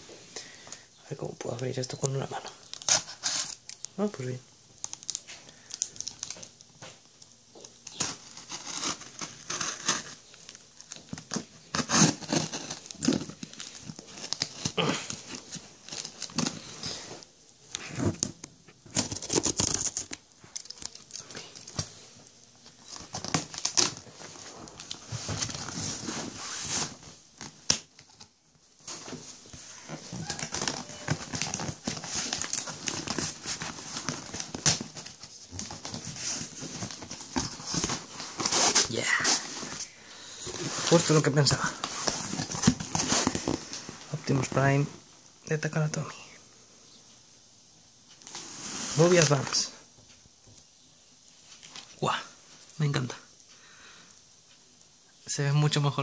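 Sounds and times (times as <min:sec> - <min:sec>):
packing tape tearing: 0:02.6 - 0:03.9, 0:07.8 - 0:16.9, 0:18.9 - 0:21.9, 0:22.9 - 0:24.1, 0:30.1 - 0:39.8, 0:41.8 - 0:43.8
cardboard flaps scraping and rustling: 0:22.8 - 0:28.2, 0:28.8 - 0:39.8, 0:40.5 - 0:44.7.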